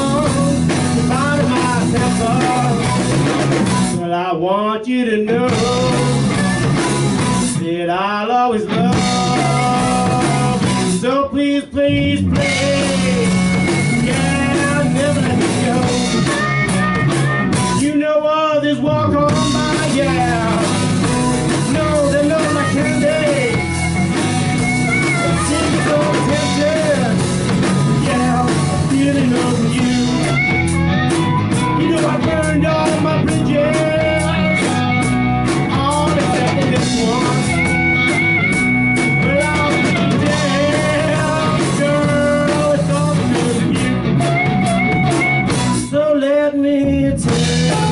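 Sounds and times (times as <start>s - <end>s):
blues-rock band playing: 0.0s - 4.3s, 5.2s - 47.9s
harmonica notes bending: 12.4s - 17.8s, 19.2s - 45.9s.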